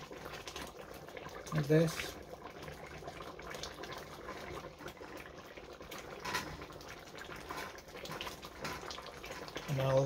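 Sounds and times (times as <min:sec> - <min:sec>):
thick soup bubbling in a pot: 0:00.0 - 0:10.0
wooden spoon stirring: 0:06.2 - 0:10.0.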